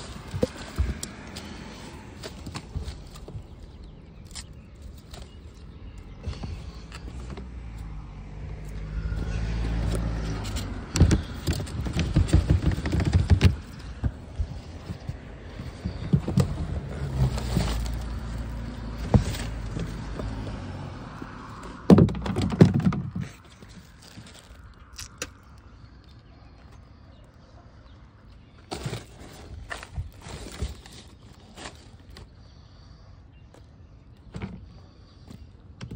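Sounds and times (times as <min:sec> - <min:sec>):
garbage crunching and rustling: 0:00.0 - 0:07.3, 0:09.0 - 0:20.8, 0:21.5 - 0:25.4, 0:28.6 - 0:32.4.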